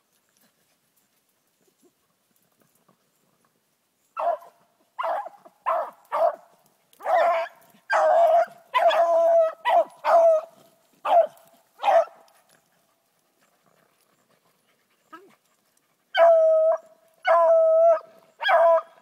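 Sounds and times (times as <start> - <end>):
dog barking and baying: 4.2 - 12.3, 16.1 - 19.0.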